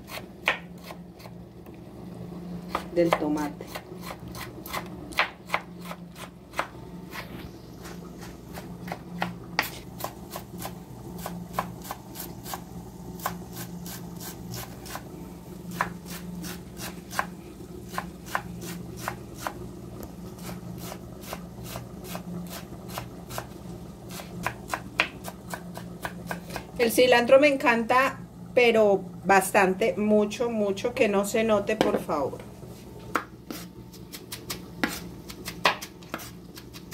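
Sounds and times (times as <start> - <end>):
steady low hum: 0.0 - 36.9
knife chopping on wooden board: 0.1 - 1.3, 2.7 - 2.9, 3.7 - 7.2, 24.4 - 26.6, 33.1 - 36.9.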